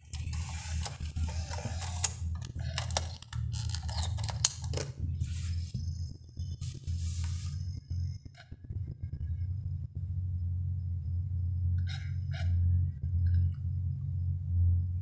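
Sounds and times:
disc mechanism whirring: 0.0s - 5.7s.

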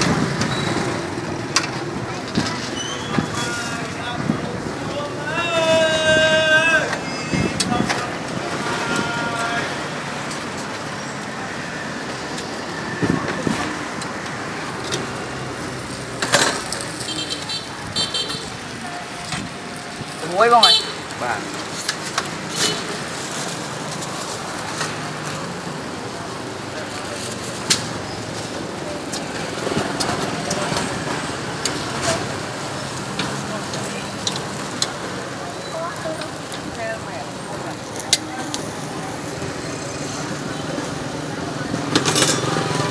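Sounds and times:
meat crackling on charcoal grill: 0.0s - 42.9s
street traffic: 0.0s - 42.9s
background voices: 1.4s - 12.4s.

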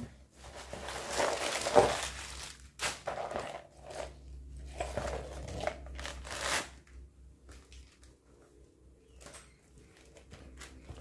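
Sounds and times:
tissue paper and plastic crinkling: 0.4s - 4.2s.

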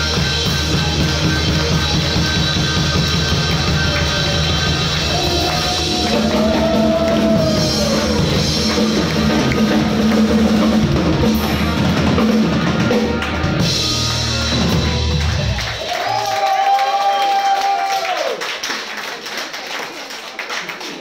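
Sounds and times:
electric bass guitar: 0.0s - 15.8s
keyboards: 0.0s - 15.8s
drum kit: 0.0s - 16.5s.

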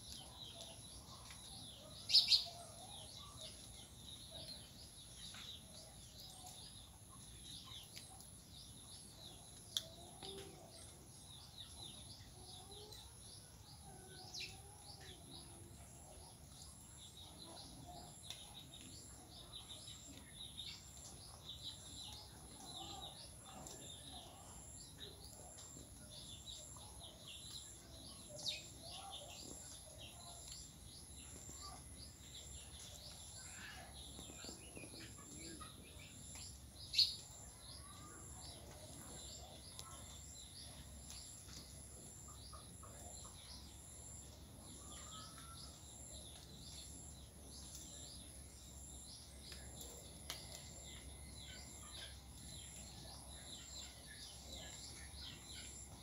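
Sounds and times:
birds chirping: 14.0s - 56.0s.

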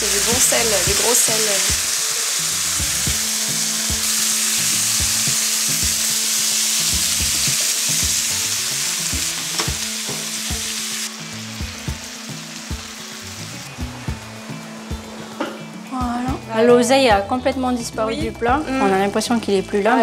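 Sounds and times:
meat sizzling in frying pan: 0.0s - 15.9s.

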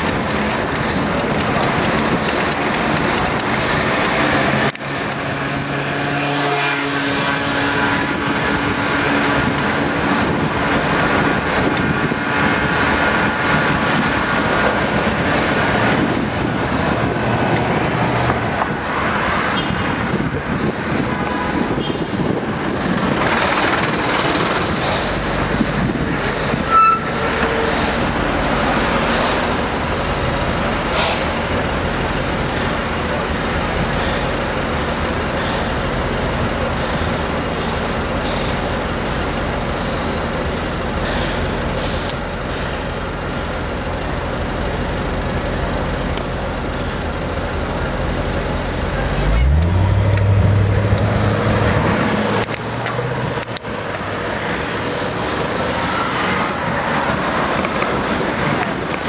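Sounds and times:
street traffic rumble: 0.0s - 59.0s
loud high squeak: 26.6s - 28.0s.

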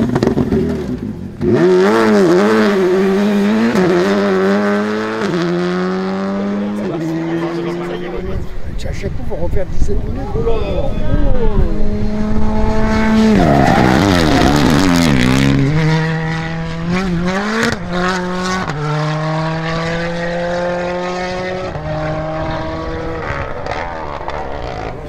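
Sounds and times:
exhaust crackling pops: 0.0s - 1.5s
rally car engine revving: 0.0s - 8.6s, 11.2s - 25.0s.

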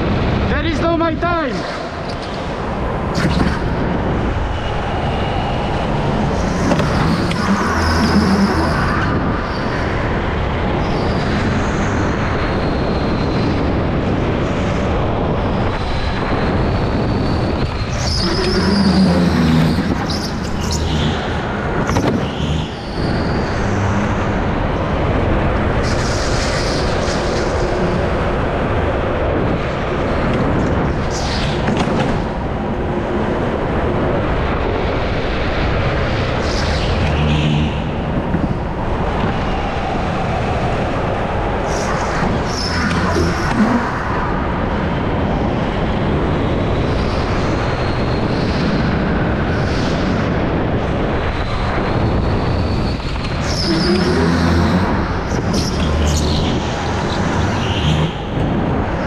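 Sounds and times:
go-kart running at speed: 1.5s - 59.0s
high-pitched tyre squeals: 4.3s - 9.9s, 16.6s - 24.4s, 41.7s - 44.1s, 51.4s - 58.4s.

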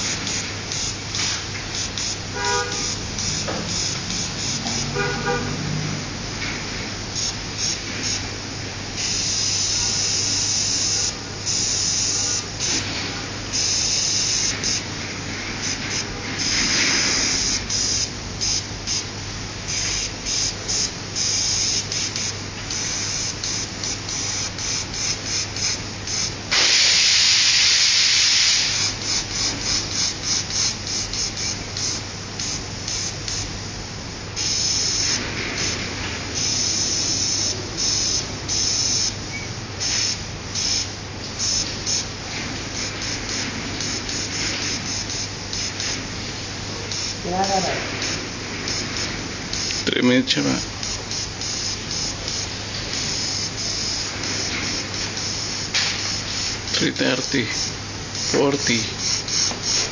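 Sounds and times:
airbrush spraying hiss: 0.0s - 5.7s, 9.0s - 33.6s, 34.3s - 39.2s, 39.8s - 59.9s.

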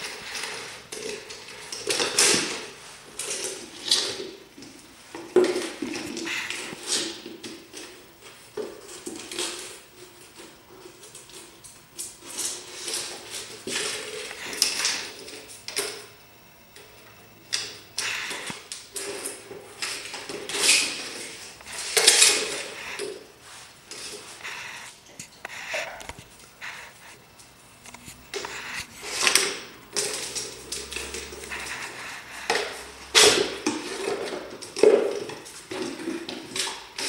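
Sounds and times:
plastic jar clattering on concrete: 28.3s - 37.0s.

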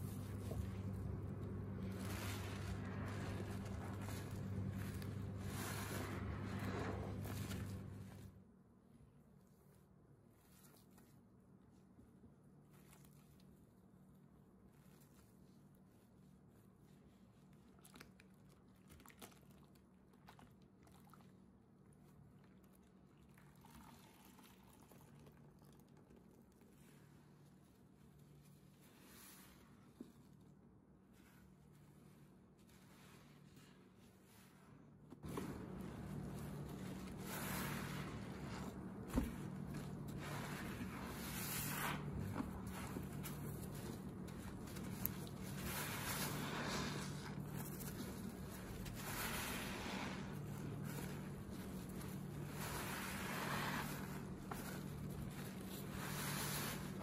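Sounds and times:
soapy foam crackling: 0.0s - 8.4s, 12.6s - 57.0s
steady low hum: 0.0s - 8.5s, 27.7s - 57.0s
wet sponge squishing in suds: 0.0s - 57.0s.

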